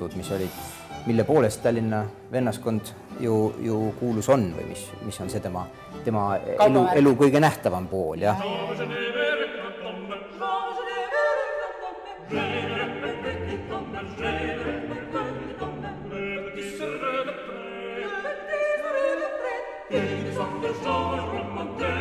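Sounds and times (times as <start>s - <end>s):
choir singing: 6.6s - 7.5s, 8.2s - 22.0s.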